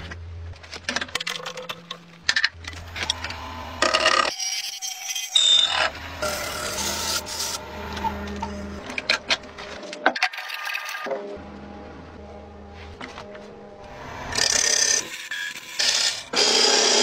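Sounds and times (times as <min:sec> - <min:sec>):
lathe motor hum: 0:05.8 - 0:09.8.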